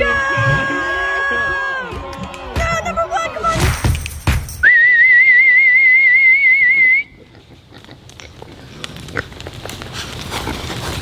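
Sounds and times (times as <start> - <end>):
loud warbling whistle: 4.6 - 7.2
pigs grunting: 7.2 - 11.0.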